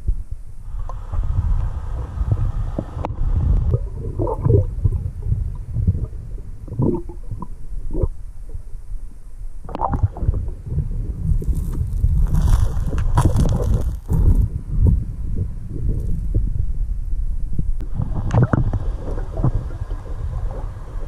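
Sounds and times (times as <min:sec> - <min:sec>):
underwater low rumble: 0:00.0 - 0:21.0
regulator inhale hiss: 0:00.6 - 0:03.7
gurgling exhaled bubbles: 0:00.7 - 0:08.2, 0:09.7 - 0:16.5, 0:17.8 - 0:21.0.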